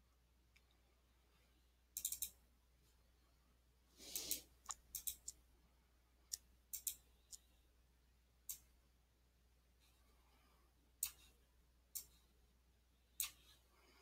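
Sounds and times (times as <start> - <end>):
computer mouse clicks: 2.0 - 2.4, 4.1 - 5.4, 6.3 - 7.5, 11.0 - 11.3, 11.9 - 12.2, 13.2 - 13.5.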